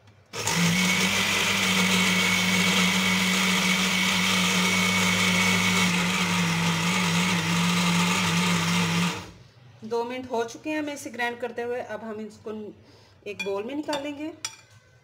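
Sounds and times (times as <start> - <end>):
blender motor running: 0.4 - 9.4.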